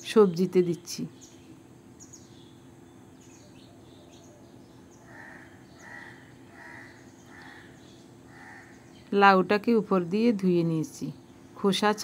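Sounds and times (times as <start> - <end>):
small birds chirping: 0.0 - 12.0
faint crow cawing: 3.5 - 9.0.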